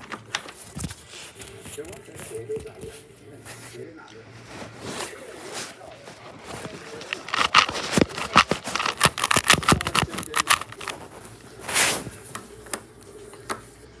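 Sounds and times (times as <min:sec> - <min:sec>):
plastic puzzle cube clicking: 0:07.1 - 0:11.1.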